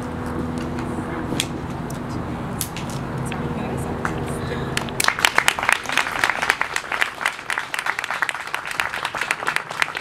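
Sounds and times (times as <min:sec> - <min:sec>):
small crowd applauding: 0:04.8 - 0:10.0.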